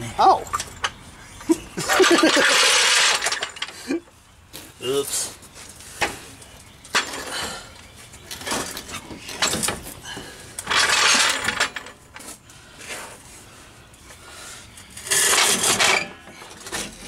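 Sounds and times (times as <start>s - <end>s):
metal rattling scrapes: 1.8s - 3.8s, 10.6s - 12.0s, 14.9s - 17.0s.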